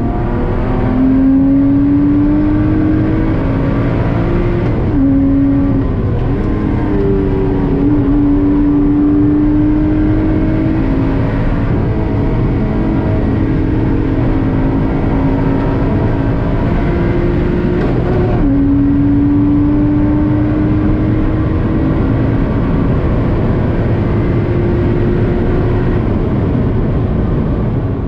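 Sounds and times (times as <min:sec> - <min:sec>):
tyre and road noise: 0:00.0 - 0:20.3
car engine accelerating: 0:00.0 - 0:28.0.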